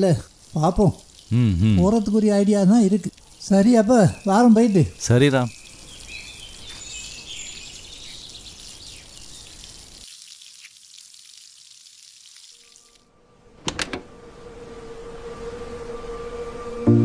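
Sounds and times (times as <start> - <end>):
low steady musical tone: 14.1 - 17.0.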